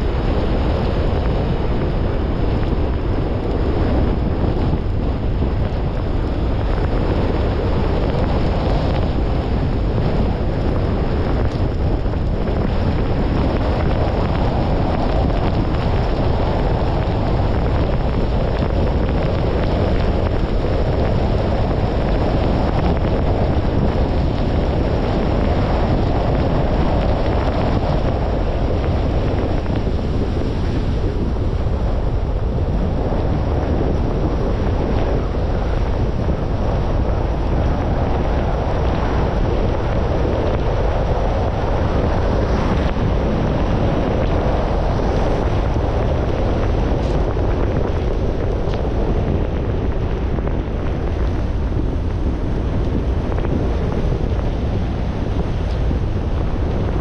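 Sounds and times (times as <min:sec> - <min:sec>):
wind buffeting microphone: 0:00.0 - 0:57.0
tyres hissing on wet road: 0:05.0 - 0:57.0.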